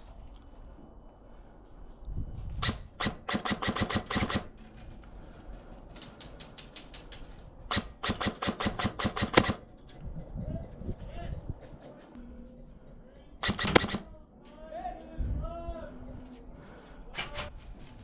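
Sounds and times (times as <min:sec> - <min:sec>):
airsoft guns firing: 0:02.6 - 0:04.5, 0:07.7 - 0:09.7, 0:13.4 - 0:14.2.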